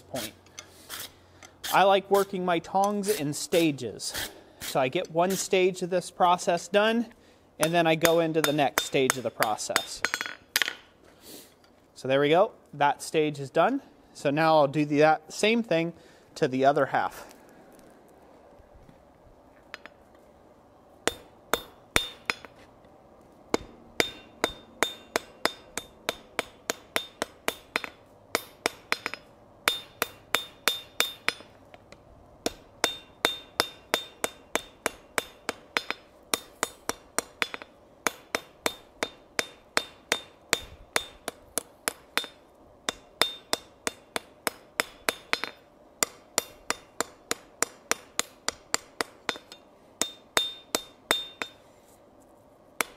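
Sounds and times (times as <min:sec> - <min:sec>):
hammer striking hot steel: 0:07.6 - 0:10.9, 0:21.0 - 0:22.6, 0:23.5 - 0:31.6, 0:32.4 - 0:51.7
anvil ringing: 0:24.0 - 0:31.6, 0:32.5 - 0:51.6.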